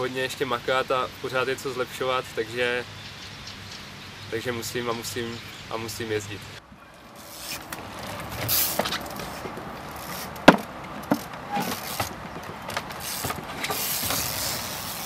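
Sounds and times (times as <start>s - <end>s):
bike knocking on wooden pallets: 7.7s - 15.0s.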